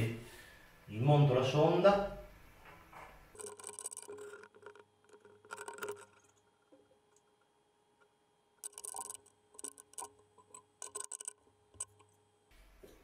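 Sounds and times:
faint steady hum: 0.0 - 13.0
small tools clicking and clinking: 3.3 - 6.6, 8.6 - 12.1.

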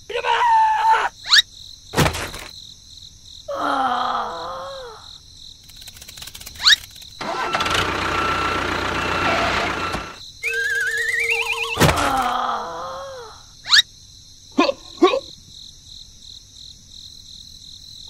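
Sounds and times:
thud: 2.0 - 2.5
steady engine-like noise: 7.2 - 10.2.

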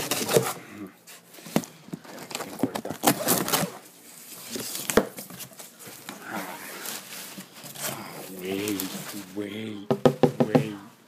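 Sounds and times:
packing peanuts rustling: 1.4 - 9.6
sharp knocks and clicks: 9.9 - 10.7.

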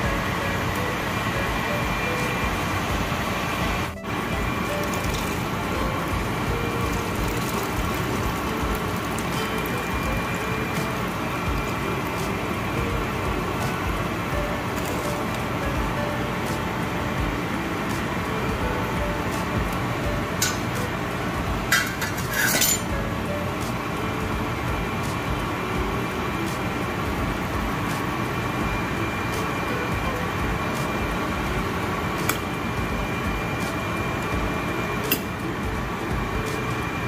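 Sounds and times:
steady background hum: 0.0 - 37.0
utensil clinking on cookware: 20.4 - 20.8, 21.7 - 22.9.

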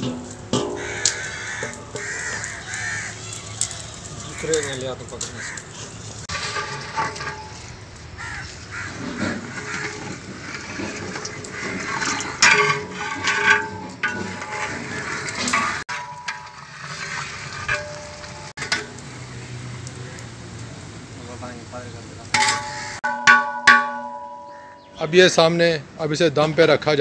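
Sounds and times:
crows calling: 0.6 - 6.2, 8.1 - 12.4, 22.4 - 25.4
metal ladle scraping rice in pot: 5.2 - 7.8, 8.8 - 18.8.

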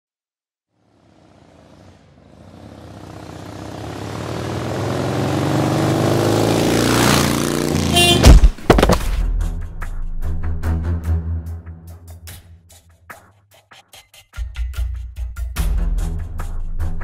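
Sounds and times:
motorcycle engine passing: 0.7 - 8.6
sharp loud thumps: 8.1 - 9.2.

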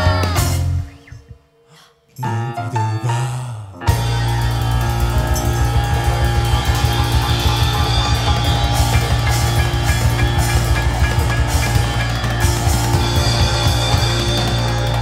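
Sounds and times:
bass: 0.0 - 1.4, 2.2 - 15.0
keyboards: 0.0 - 1.5, 2.1 - 15.0
drum kit beat: 3.9 - 15.0.

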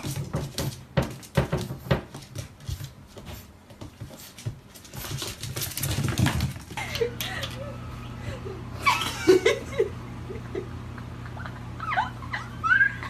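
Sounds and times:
paws pattering on tile: 0.0 - 7.5
animals scuffling: 0.0 - 7.6.

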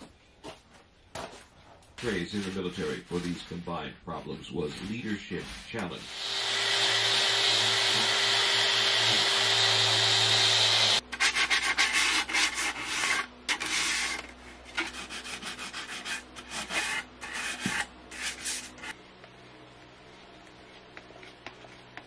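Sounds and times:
hand sanding wood: 4.7 - 19.0
orbital sander running: 6.0 - 11.0.

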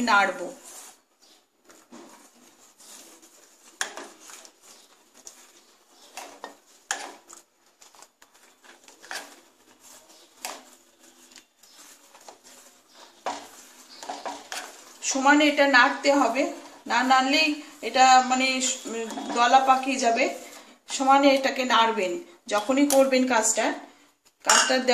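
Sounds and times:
spoon scraping and clinking in pot: 3.7 - 7.4, 8.3 - 15.4, 24.5 - 24.9.

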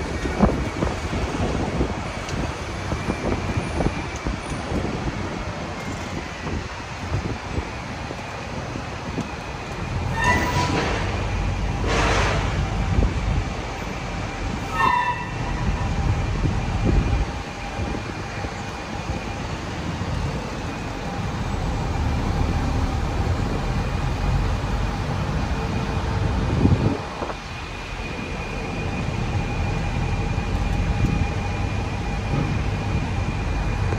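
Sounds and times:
bus engine and road rumble: 0.0 - 33.9
brief horn-like tone: 14.7 - 15.6.

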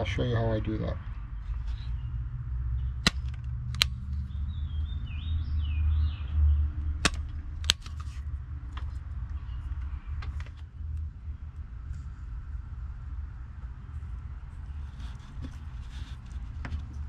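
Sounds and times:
birds chirping: 0.0 - 3.2, 3.8 - 7.6, 8.8 - 11.6
low steady rumble: 0.0 - 17.0
wire stripper snapping clicks: 3.0 - 4.2, 7.0 - 8.0.

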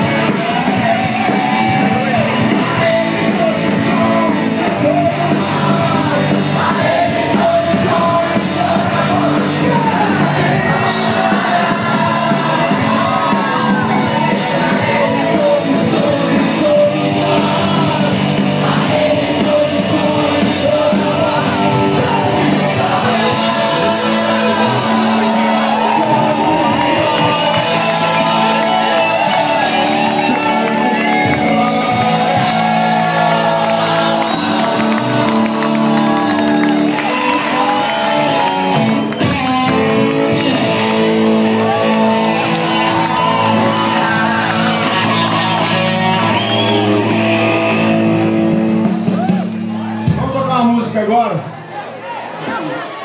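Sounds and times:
person singing: 0.0 - 49.4
electric guitars: 0.0 - 50.2
live rock band playing: 0.0 - 50.3
crowd shouting: 0.0 - 53.0.

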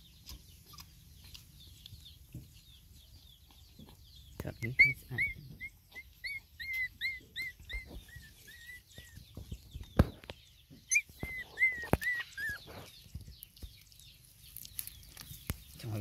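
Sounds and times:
puppy whimpering: 4.6 - 9.2, 10.9 - 12.9.

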